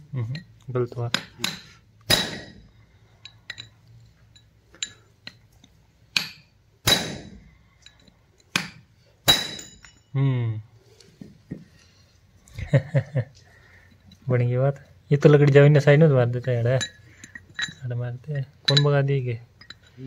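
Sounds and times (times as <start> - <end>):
hammer striking steel chisel: 1.1 - 2.7, 6.1 - 10.0.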